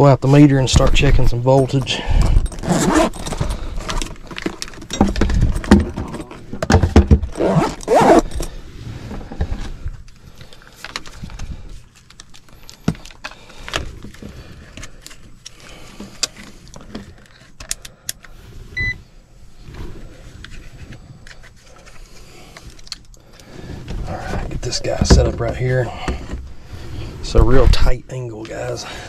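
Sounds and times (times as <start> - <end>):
tools clattering and jangling: 0.8 - 9.7
meter electronic beep: 18.8 - 19.0.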